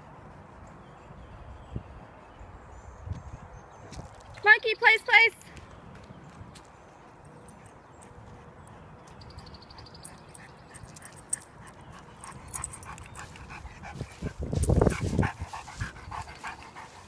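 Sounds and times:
dog panting: 0:07.0 - 0:17.0.

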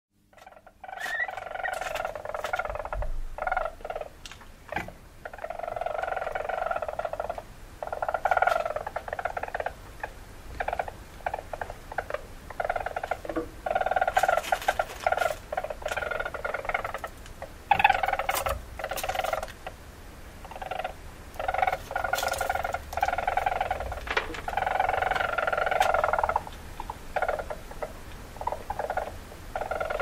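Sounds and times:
weasel buzzing trills: 0:00.3 - 0:04.2, 0:20.5 - 0:30.0.

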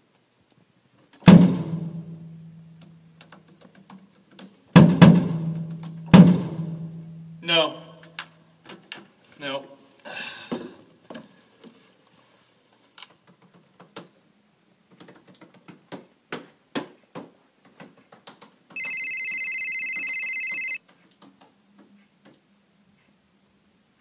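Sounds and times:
laptop keyboard typing: 0:13.0 - 0:14.1, 0:17.7 - 0:20.8
electronic telephone ring: 0:18.8 - 0:20.8.

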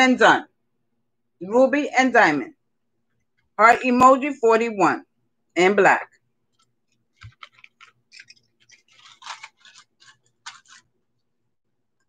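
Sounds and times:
jewelry clicking and rustling: 0:06.5 - 0:11.0.

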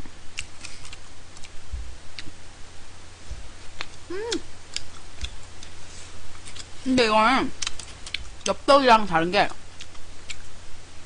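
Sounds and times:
chewing: 0:00.3 - 0:02.3, 0:03.8 - 0:06.7, 0:07.6 - 0:08.5, 0:09.5 - 0:10.5.

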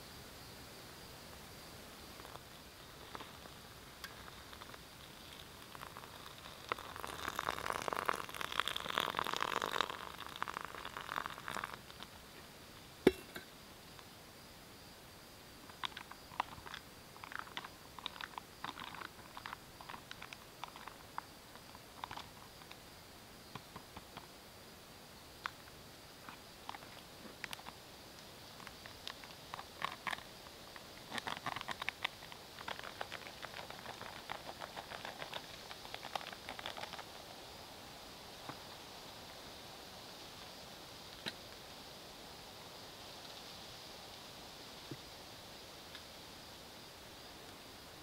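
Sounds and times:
water pouring into a pouch: 0:04.2 - 0:12.0, 0:28.6 - 0:37.2.

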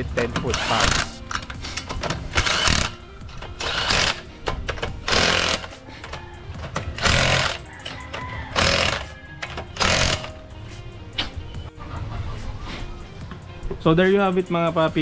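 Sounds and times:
background music: 0:00.0 - 0:15.0
impact wrench hammering: 0:00.5 - 0:05.7, 0:06.7 - 0:07.6, 0:08.6 - 0:10.4.

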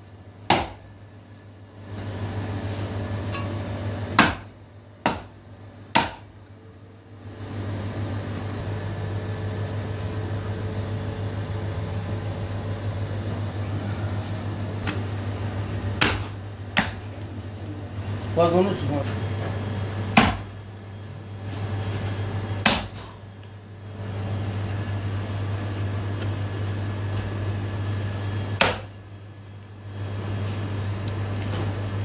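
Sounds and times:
steady low hum: 0:00.0 - 0:32.0
meat axe chopping into wood block: 0:00.5 - 0:00.8, 0:04.2 - 0:05.4, 0:06.0 - 0:06.3, 0:16.0 - 0:17.0, 0:20.2 - 0:20.5, 0:22.6 - 0:23.1, 0:28.6 - 0:28.9.

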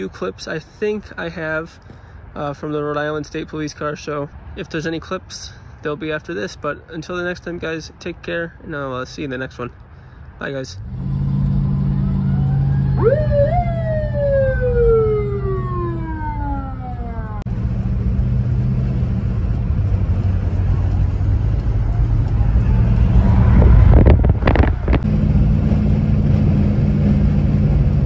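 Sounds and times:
car engine and road noise: 0:00.0 - 0:28.0
police siren winding down: 0:11.0 - 0:17.5.

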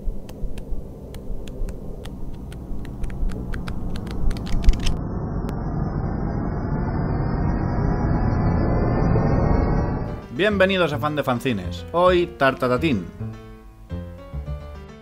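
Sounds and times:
sharp crackling clicks: 0:00.0 - 0:05.0
low rumbling noise: 0:00.0 - 0:11.1.

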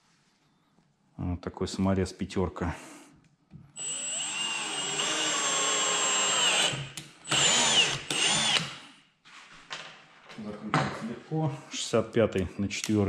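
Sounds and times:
drill driver whining: 0:03.8 - 0:08.9.

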